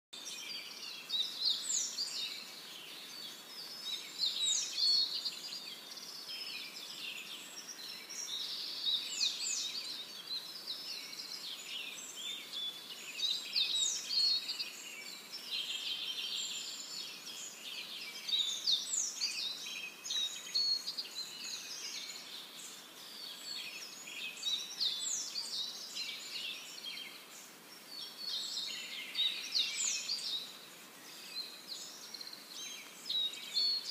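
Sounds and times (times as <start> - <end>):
birds chirping chorus: 0.2 - 33.9.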